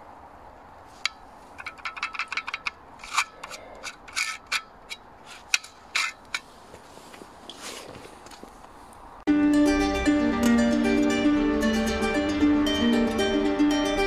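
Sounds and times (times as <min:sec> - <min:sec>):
rusty metal valve scraping: 0:01.0 - 0:06.5.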